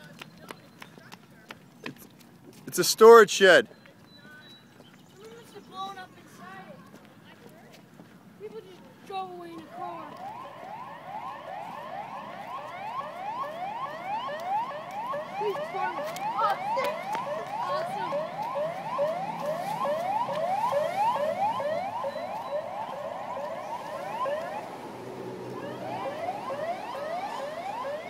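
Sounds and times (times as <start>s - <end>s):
emergency siren yelping: 9.4s - 28.0s.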